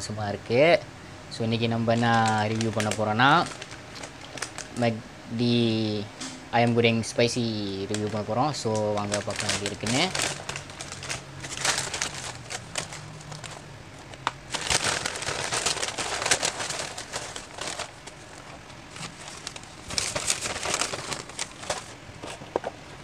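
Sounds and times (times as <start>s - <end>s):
paper bag rustling: 1.8s - 4.8s, 7.8s - 22.7s.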